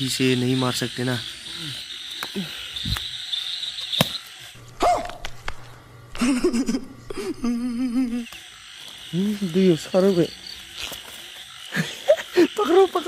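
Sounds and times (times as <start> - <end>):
frogs croaking: 0.0 - 5.2, 6.2 - 13.0
night insects chirring: 0.0 - 13.0.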